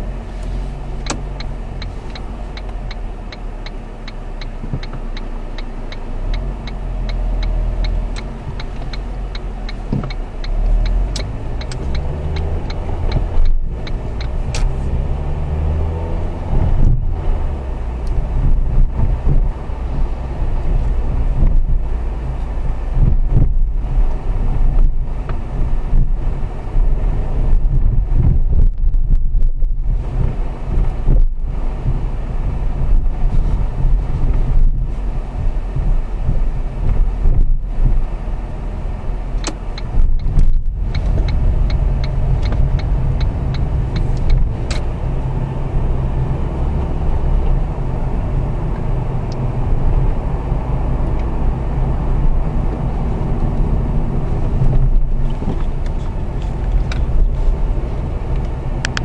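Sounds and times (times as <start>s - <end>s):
car engine and tyre rumble: 0.0s - 59.0s
light ticking: 1.0s - 14.8s, 39.4s - 45.0s.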